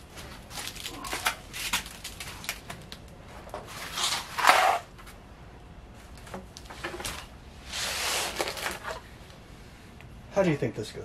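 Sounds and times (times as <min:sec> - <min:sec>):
foam packing scraping rustle: 0:03.7 - 0:04.9, 0:07.7 - 0:09.0.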